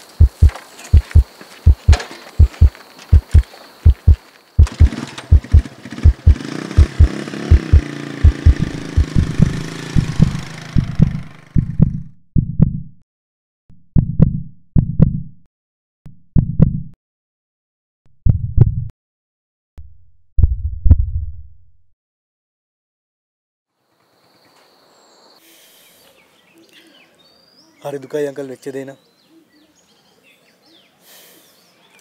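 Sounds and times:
deep heartbeat thuds: 0.2 - 13.0, 13.9 - 15.4, 16.3 - 17.0, 18.2 - 18.9, 20.4 - 21.6
loud rushing noise: 6.2 - 11.7.

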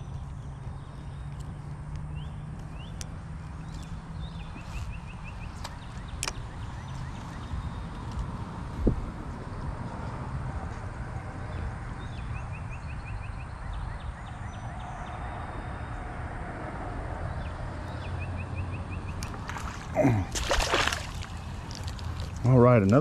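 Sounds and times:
fish splashing in water: 19.1 - 22.5.

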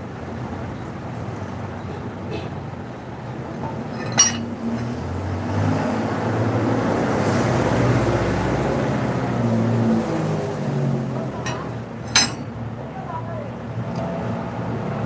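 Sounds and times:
vehicle engine rumbling: 1.4 - 6.5, 9.4 - 13.0.

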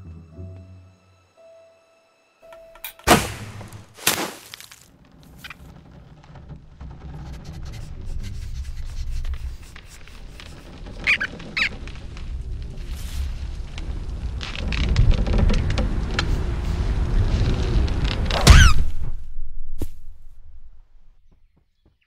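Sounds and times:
sharp hit: 3.0 - 4.7
short high squeaks: 9.9 - 11.9
low rumble: 11.8 - 21.2.

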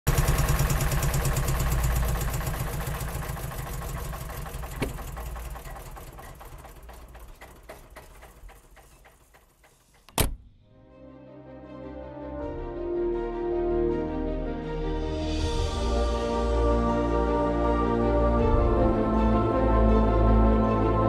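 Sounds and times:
car engine idling: 0.1 - 10.1
car door slam: 10.1 - 10.5.

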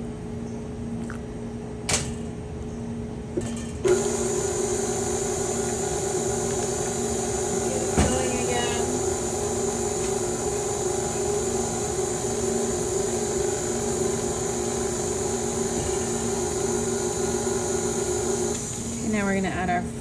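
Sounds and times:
stand mixer motor hum: 3.9 - 19.1.

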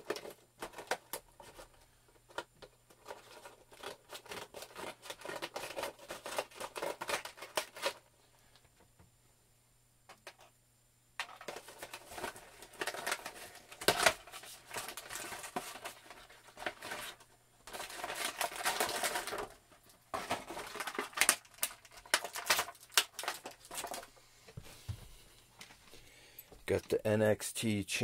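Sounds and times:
plastic packaging crinkling: 0.0 - 8.0, 11.3 - 24.1.

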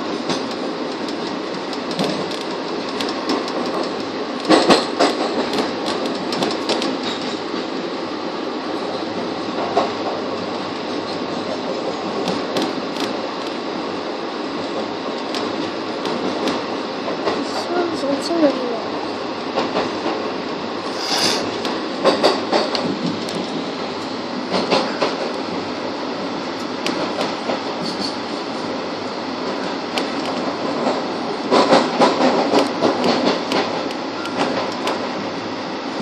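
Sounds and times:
train wheels rumbling on rails: 0.0 - 36.0
sharp clicks and knocks: 0.3 - 7.3, 29.9 - 35.0.

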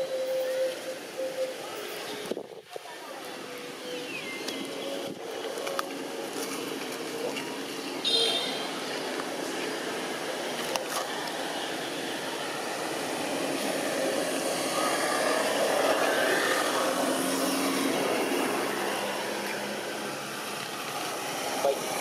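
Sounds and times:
outdoor background noise: 0.0 - 22.0.

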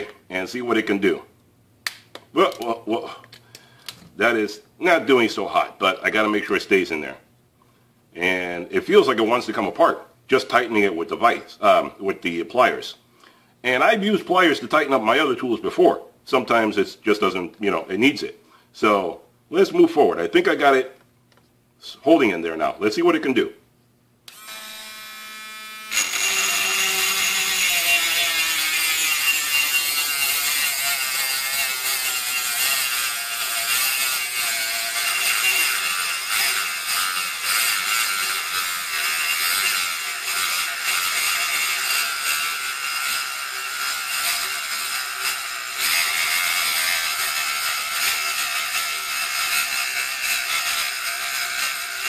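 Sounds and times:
cut-off wheel grinding metal: 24.3 - 52.0
rotary tool motor whine: 24.3 - 52.0.

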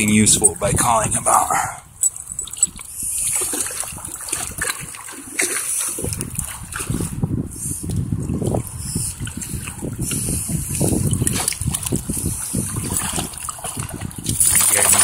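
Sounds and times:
boots wading through muddy water: 2.4 - 7.2, 8.0 - 15.0.

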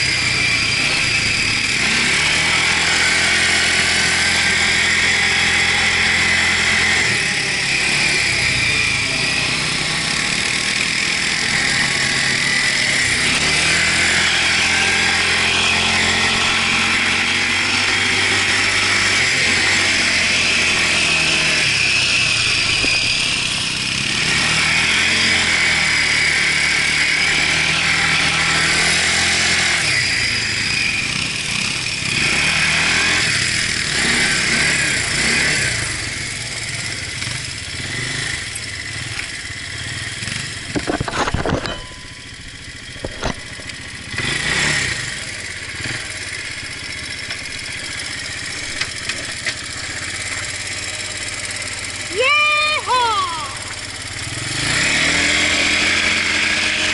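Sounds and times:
quad bike engine running: 0.0 - 56.9.

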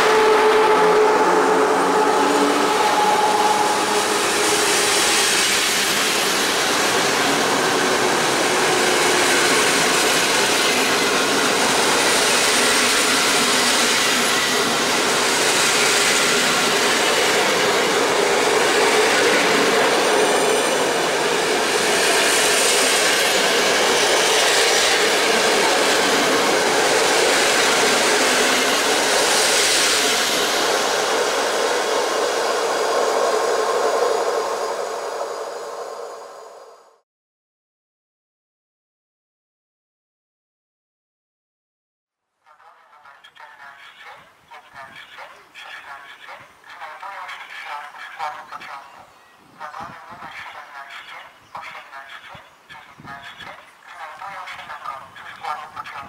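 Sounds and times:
train rail rumble: 0.0 - 36.9
train hiss: 0.0 - 37.0.

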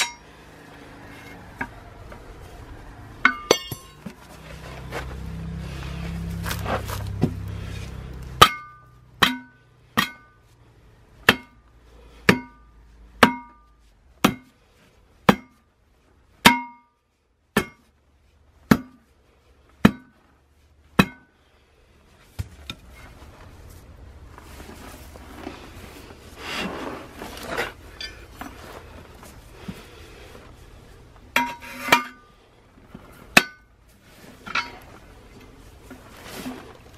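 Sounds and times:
metal wheel rim clanking: 0.0 - 2.3, 3.1 - 10.5, 26.6 - 28.7, 31.3 - 36.9.

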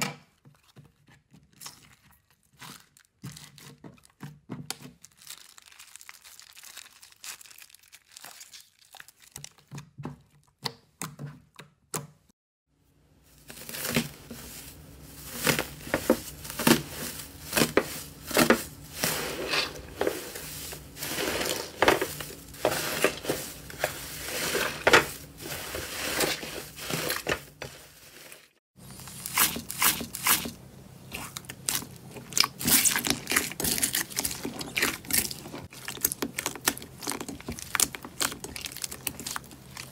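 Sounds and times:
slime squelching and crackling: 1.5 - 10.6, 13.3 - 39.9
foam beads crunching: 5.0 - 9.3, 13.3 - 30.6, 31.2 - 39.9.

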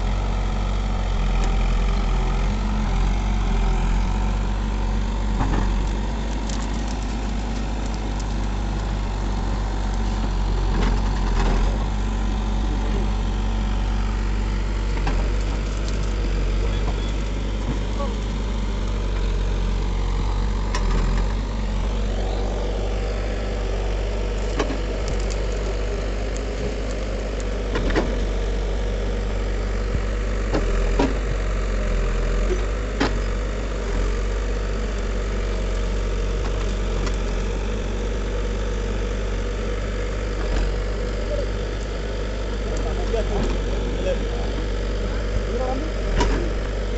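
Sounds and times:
diesel engine running: 0.0 - 46.9.

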